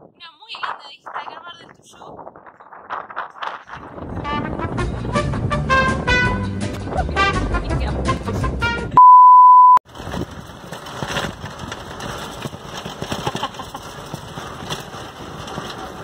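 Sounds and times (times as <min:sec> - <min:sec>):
wind noise: 0:00.0 - 0:09.0, 0:09.9 - 0:16.0
electronic beep: 0:09.0 - 0:09.8
vehicle rattle: 0:09.9 - 0:16.0.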